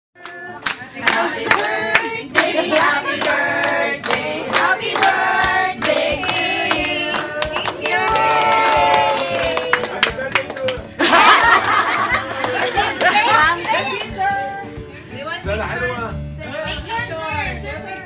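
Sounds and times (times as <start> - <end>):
women singing together: 0.2 - 9.0
hand clapping: 4.0 - 14.1.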